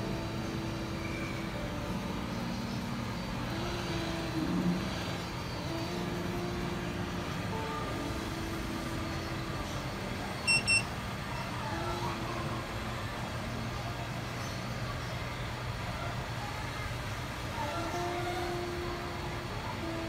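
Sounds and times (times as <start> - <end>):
short high electronic beeps: 10.5 - 10.9.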